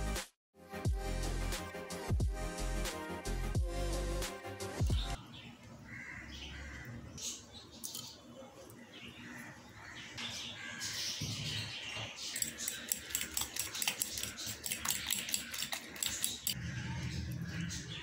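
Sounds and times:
fork clinking against bowl: 12.4s - 16.6s.

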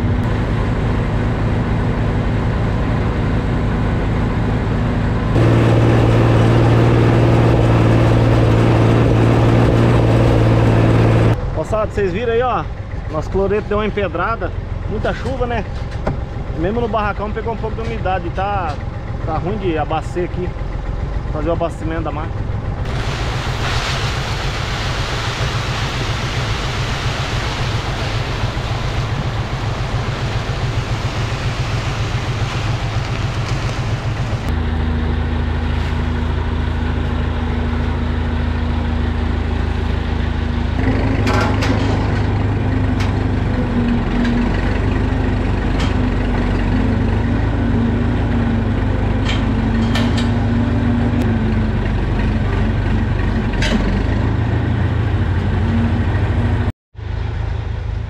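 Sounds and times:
tractor engine running: 0.0s - 58.0s.

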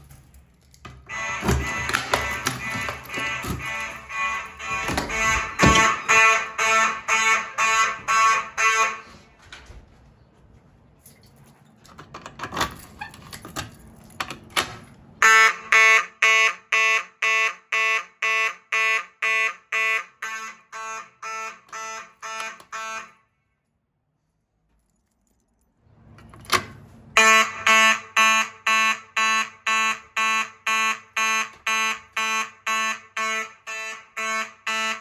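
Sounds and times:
pulsed fire alarm horns: 1.0s - 9.5s, 15.2s - 23.6s, 27.1s - 35.0s.

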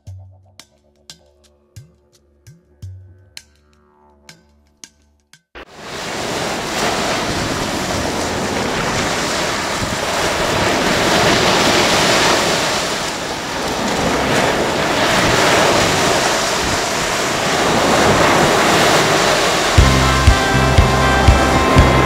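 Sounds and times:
waves breaking on sandy shore: 5.6s - 22.0s.

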